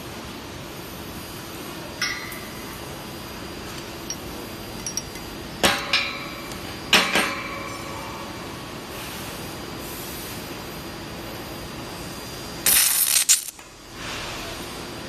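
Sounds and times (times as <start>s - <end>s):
low steady hum: 2.1s - 8.6s
light metallic clinks: 3.7s - 6.1s.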